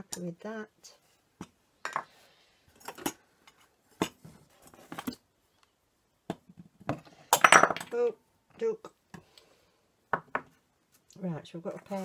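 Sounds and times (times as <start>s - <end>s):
metal cups clinking on table: 7.3s - 7.9s.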